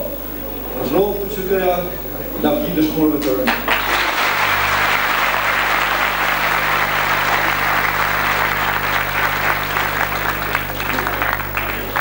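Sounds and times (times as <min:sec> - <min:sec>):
audience applauding: 0:03.4 - 0:12.0.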